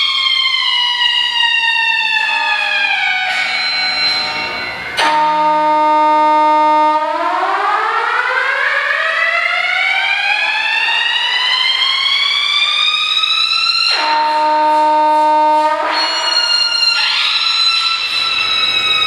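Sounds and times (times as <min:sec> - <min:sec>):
synthesized electronic tone: 0:13.9 - 0:19.0.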